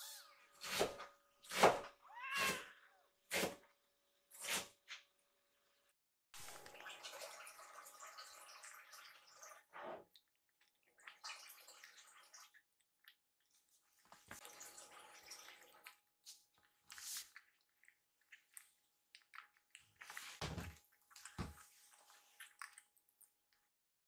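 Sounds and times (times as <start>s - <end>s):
kittens eating: 15.2s - 23.7s.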